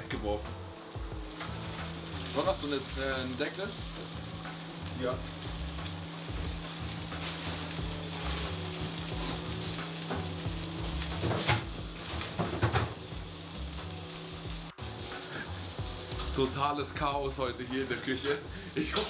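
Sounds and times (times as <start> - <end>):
fish sizzling in a pan: 0.0 - 19.0
knocks and clatters: 11.2 - 13.0.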